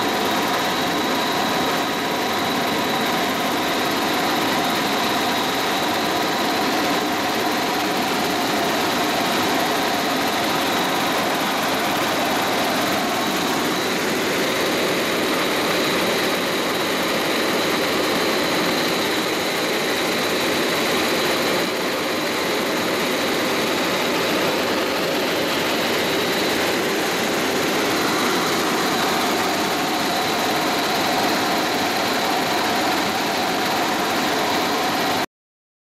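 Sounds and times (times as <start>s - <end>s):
helicopter engine and rotor: 0.0s - 35.3s.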